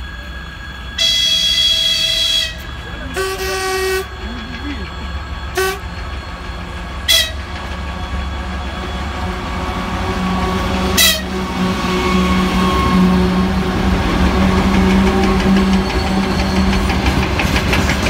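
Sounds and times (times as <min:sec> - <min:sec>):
diesel locomotive engine droning: 0:00.0 - 0:18.0
train horn toots: 0:01.0 - 0:04.2, 0:05.5 - 0:05.9, 0:07.0 - 0:07.6, 0:10.1 - 0:16.9.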